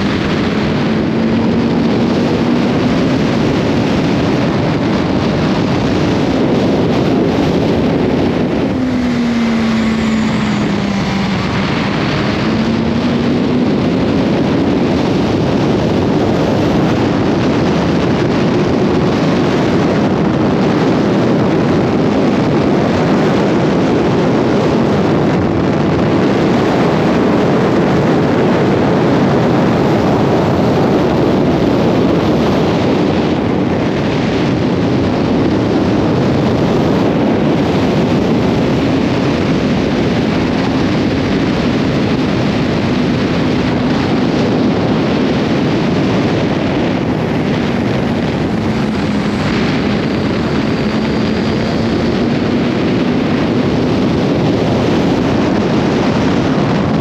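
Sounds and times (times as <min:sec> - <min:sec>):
motorcycle engine at speed: 0:00.0 - 0:57.0
wind rush on microphone: 0:00.0 - 0:57.0.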